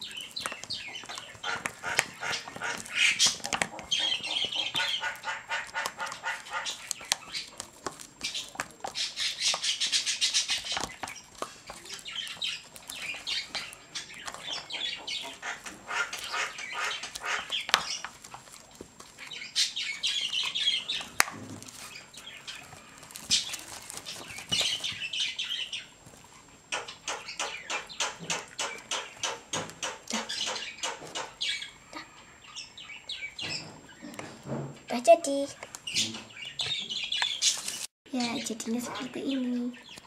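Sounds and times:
stirrer scraping plastic cup: 0.0s - 25.0s.

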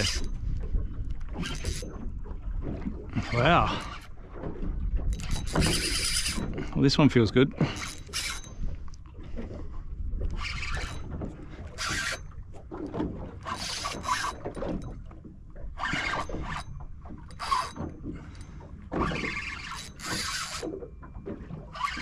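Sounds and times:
fishing reel rasping bursts: 0.0s - 0.3s, 1.4s - 1.9s, 5.2s - 6.7s, 7.7s - 8.5s, 10.4s - 11.1s, 11.7s - 12.3s, 13.4s - 14.8s, 15.8s - 18.4s, 19.0s - 20.8s, 21.7s - 22.0s
low rumble of boat and water: 0.0s - 22.0s.

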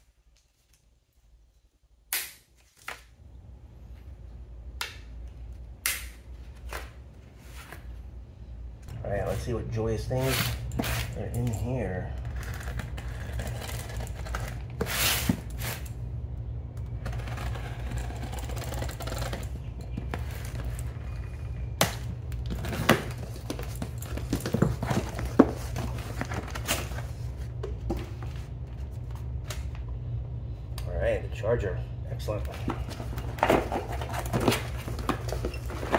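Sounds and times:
steady low hum: 0.0s - 35.9s
cardboard and paper rustling: 9.1s - 15.9s, 22.2s - 29.8s, 32.3s - 35.9s
knife slitting packing tape: 10.2s - 11.2s.

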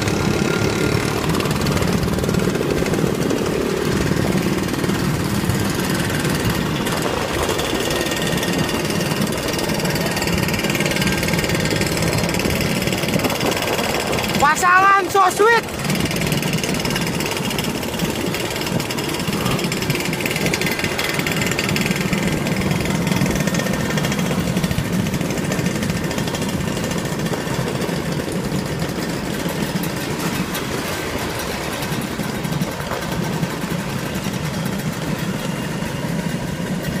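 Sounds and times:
scooter engines droning: 0.0s - 37.0s.

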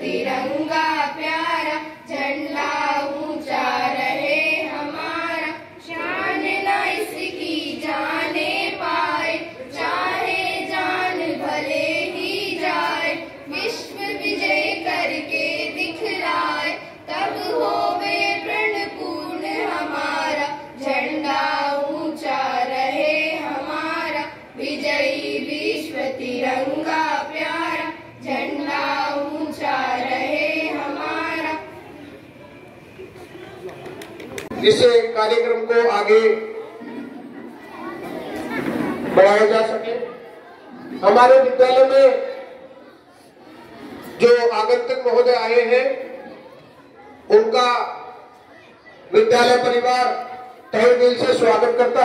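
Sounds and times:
children singing together: 0.0s - 31.8s.

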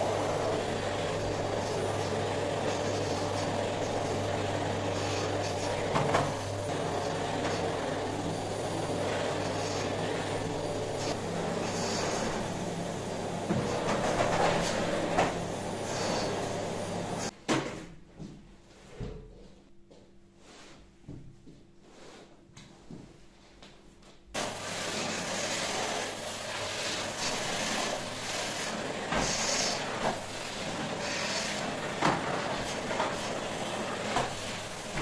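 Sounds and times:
vacuum cleaner running: 0.0s - 17.4s, 24.4s - 35.0s.

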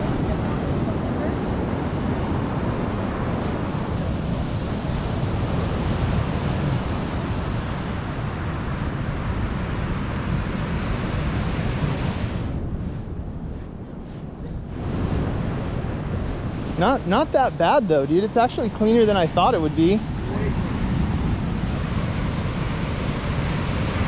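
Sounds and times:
surf washing on sandy beach: 0.0s - 24.0s
wind on microphone: 0.0s - 24.0s.

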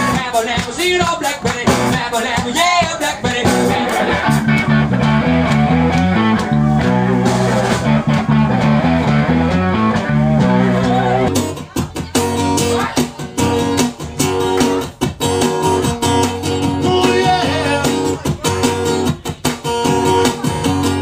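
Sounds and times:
blues band playing: 0.0s - 21.0s
walking bass line: 0.0s - 21.0s
person singing: 16.6s - 19.2s.

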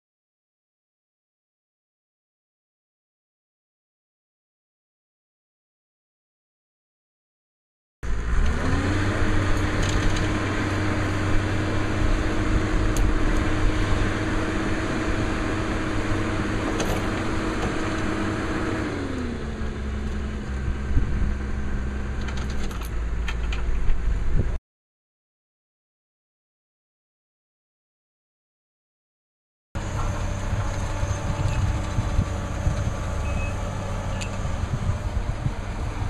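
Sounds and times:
heavy machine engine revving: 8.0s - 24.6s, 29.8s - 36.0s.

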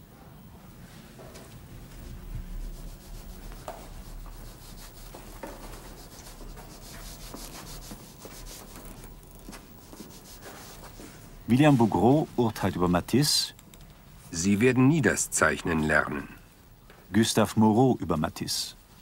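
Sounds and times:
low steady hum: 0.0s - 19.0s
chalk scratching on paper: 2.4s - 12.3s.

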